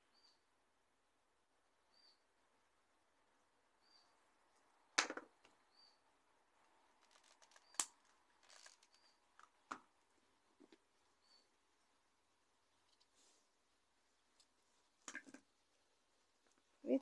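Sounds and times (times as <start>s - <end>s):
faint high chirp: 0.0s - 0.5s, 1.9s - 2.2s, 11.2s - 11.5s.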